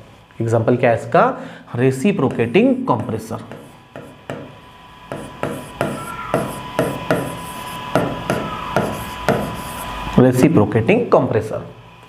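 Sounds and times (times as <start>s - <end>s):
pen tapping on board: 3.5s - 4.5s, 5.1s - 9.8s
pen tip scraping board: 5.1s - 10.0s.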